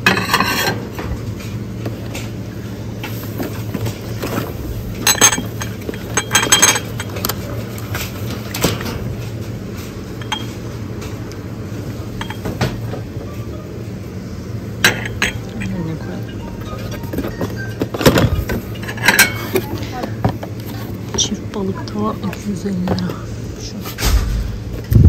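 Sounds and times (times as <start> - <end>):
dishes and glassware clinking: 0.0 - 1.1, 3.8 - 9.1, 10.2 - 11.1, 12.2 - 12.8, 14.8 - 20.4
steady low hum: 0.0 - 25.0.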